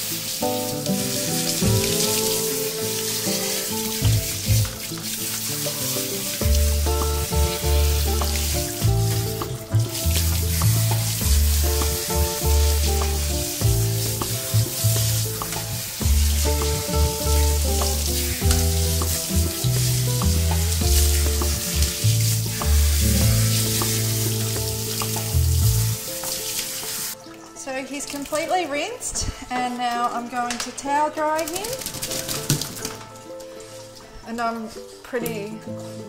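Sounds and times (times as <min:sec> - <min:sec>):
background music with bass: 0:00.0 - 0:26.5
shower sprayer hissing: 0:00.0 - 0:27.2.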